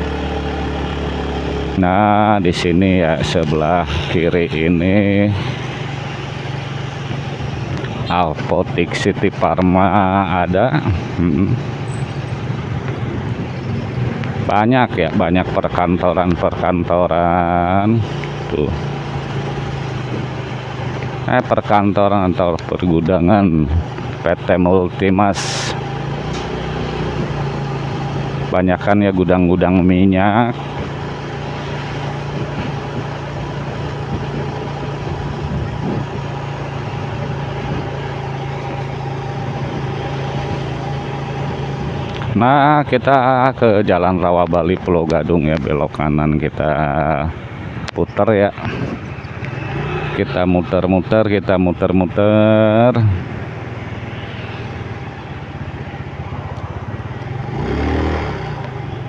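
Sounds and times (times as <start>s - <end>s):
motorcycle engine cruising: 0.0s - 59.0s
road noise rushing: 0.0s - 59.0s
vehicle passing by: 48.4s - 51.3s, 51.9s - 59.0s.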